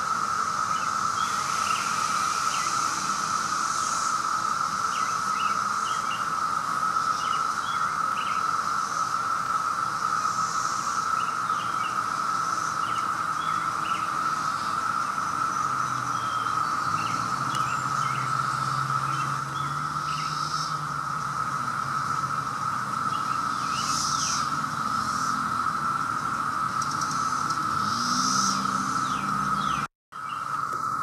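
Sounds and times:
cicadas droning: 0.0 - 31.0
bird chirps: 23.1 - 25.4, 26.8 - 30.6.

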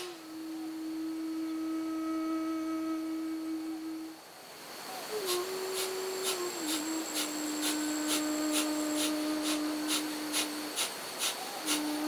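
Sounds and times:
forceful nasal exhalations: 5.2 - 12.0.

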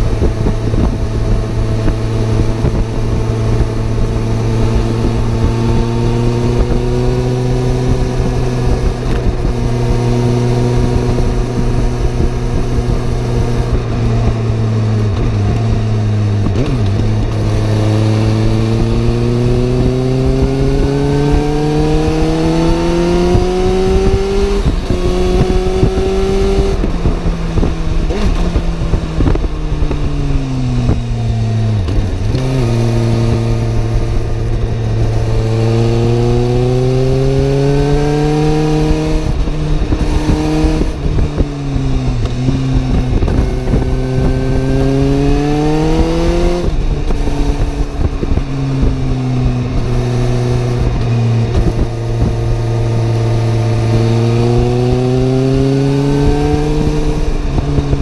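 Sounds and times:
motorcycle engine running: 0.0 - 58.0
noisy rush: 0.0 - 58.0.

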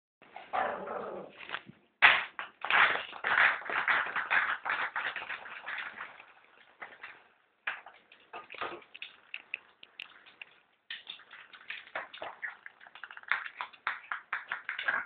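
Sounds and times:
ping pong balls bouncing on tile: 10.0 - 15.0.

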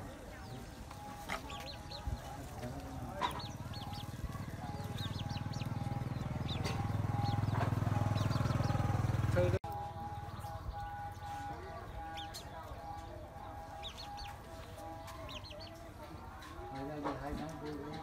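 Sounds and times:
birds chirping: 0.0 - 18.0
low engine drone: 3.4 - 12.3.

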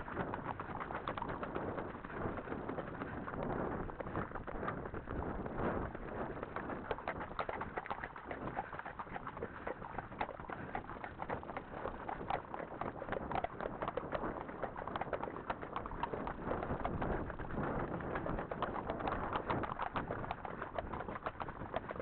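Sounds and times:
horse hooves and tack clicking: 0.0 - 22.0.

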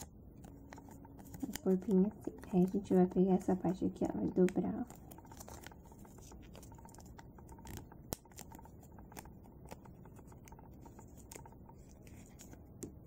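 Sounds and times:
paper being folded and creased: 0.0 - 13.0.

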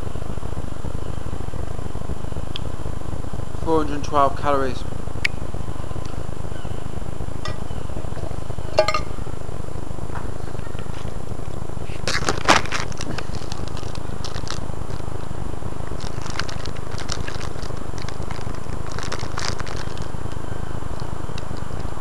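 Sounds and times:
steady low rumble: 0.0 - 22.0
crackles and clicks: 11.5 - 21.9.

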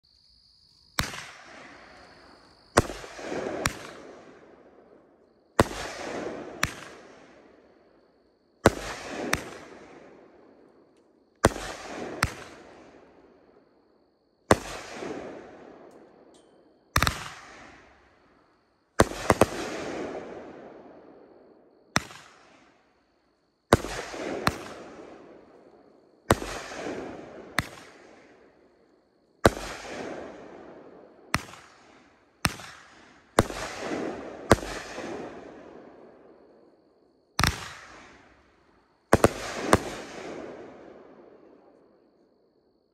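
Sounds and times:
firework shots banging: 1.0 - 2.0, 2.8 - 4.2, 17.0 - 18.0, 31.3 - 35.4.

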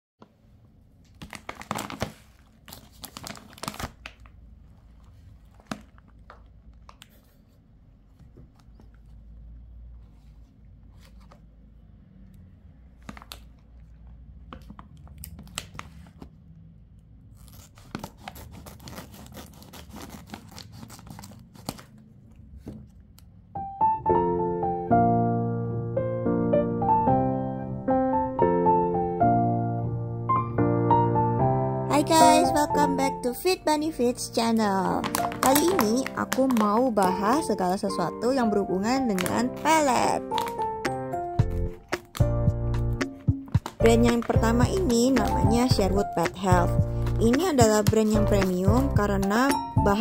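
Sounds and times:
plastic pouch crinkling: 1.0 - 7.4, 13.0 - 16.2, 17.3 - 22.6, 34.1 - 48.9
scissors cutting plastic bag: 1.2 - 4.3, 17.4 - 22.0, 34.7 - 38.1, 39.0 - 42.3, 43.0 - 46.4.

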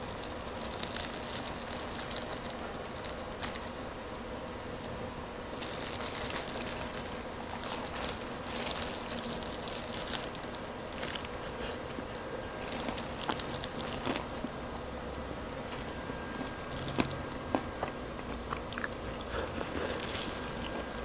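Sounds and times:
fried chicken tearing: 0.0 - 3.7, 5.6 - 11.8, 12.6 - 14.5, 16.4 - 21.0
plastic gloves crinkling: 0.0 - 3.8, 5.5 - 14.7, 15.6 - 21.0.

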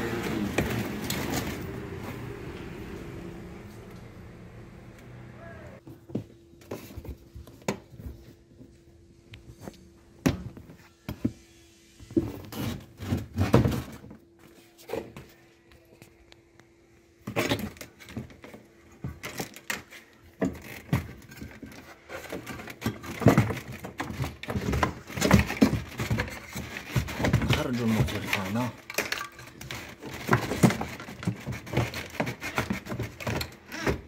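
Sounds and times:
clatter of metal and plastic parts: 17.2 - 34.0.

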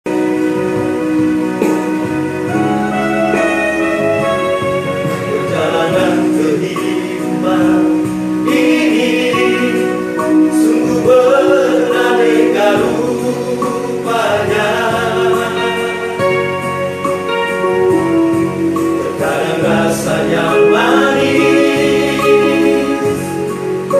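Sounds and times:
instrumental backing music: 0.0 - 23.9
male group singing: 5.1 - 16.4, 19.0 - 23.6.

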